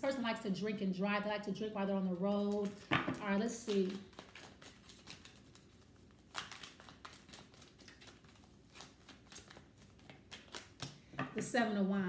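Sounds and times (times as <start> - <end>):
cards being shuffled: 2.4 - 11.4.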